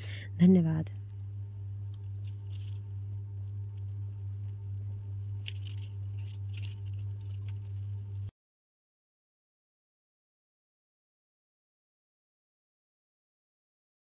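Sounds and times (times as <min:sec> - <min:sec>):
low electrical hum: 0:00.0 - 0:08.3
thin high whine: 0:00.8 - 0:08.3.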